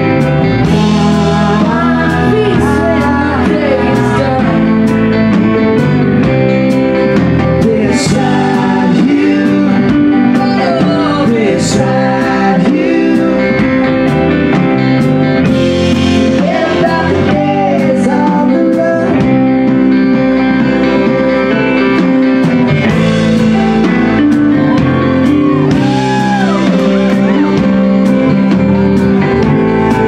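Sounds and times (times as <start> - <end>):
person singing: 0.0 - 6.3, 7.0 - 14.3, 15.9 - 20.4, 23.7 - 30.0
live band playing: 0.0 - 30.0
drum beat: 21.6 - 30.0.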